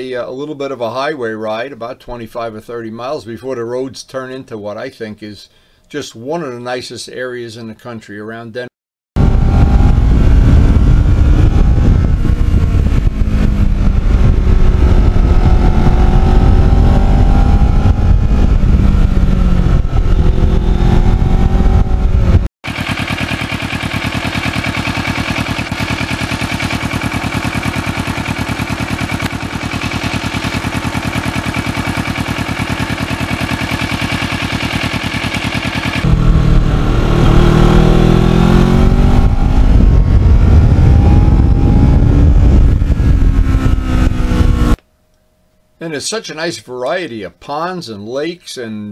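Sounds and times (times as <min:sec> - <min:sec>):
motorcycle engine revving: 0:09.2 - 0:44.8
motorcycle engine idling: 0:22.7 - 0:37.2.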